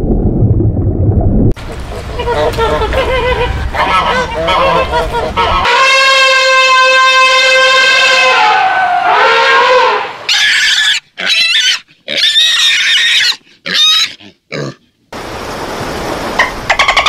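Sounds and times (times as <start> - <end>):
elephant trumpeting: 1.8 - 13.1
pig squealing: 1.9 - 6.6, 7.2 - 14.8.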